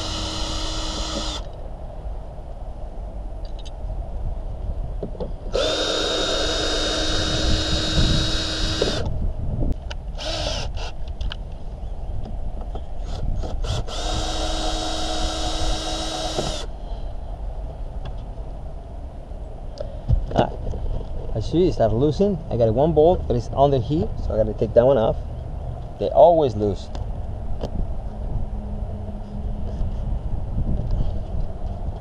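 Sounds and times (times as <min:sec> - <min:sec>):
power drill spinning: 0:00.0 - 0:01.5, 0:05.5 - 0:09.1, 0:10.2 - 0:11.0, 0:13.1 - 0:16.7.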